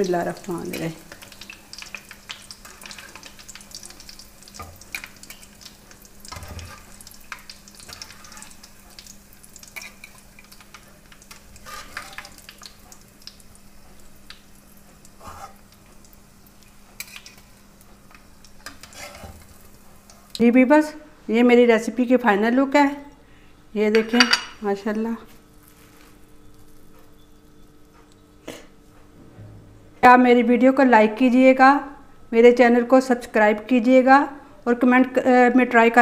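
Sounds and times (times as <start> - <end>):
food sizzling in hot oil: 0.0 - 20.4.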